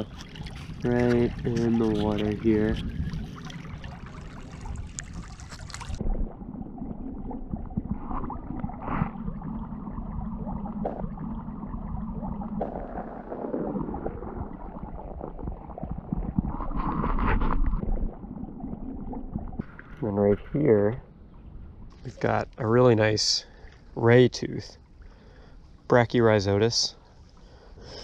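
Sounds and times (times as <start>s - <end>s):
creek water gurgling: 0.0s - 25.5s.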